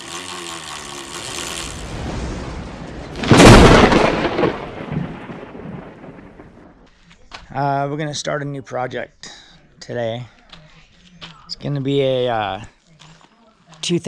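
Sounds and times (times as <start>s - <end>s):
thunder-like boom: 1.8s - 6.8s.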